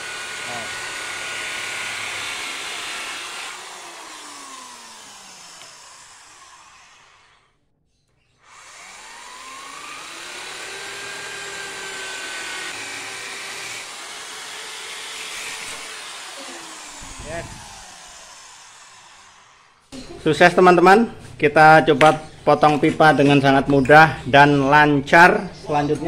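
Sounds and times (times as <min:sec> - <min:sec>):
electric drill cutting plastic pipe: 0:00.0 - 0:07.6, 0:08.4 - 0:19.9.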